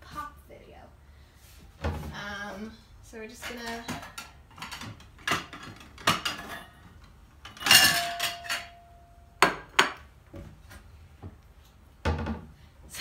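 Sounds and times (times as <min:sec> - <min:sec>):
dishes clinking and knocking: 0:03.6 - 0:06.8, 0:07.4 - 0:10.0
loud ringing dish clatter: 0:07.5 - 0:09.0.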